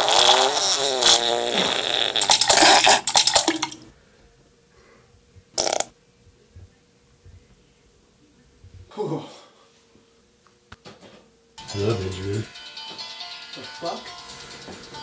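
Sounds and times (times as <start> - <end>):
sputtering fart-like noise: 0.0 - 3.9, 5.5 - 6.0.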